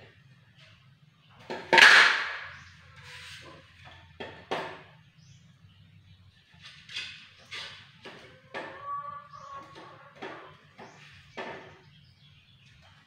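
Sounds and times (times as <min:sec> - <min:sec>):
tiles knocking and scraping: 0:06.5 - 0:08.8.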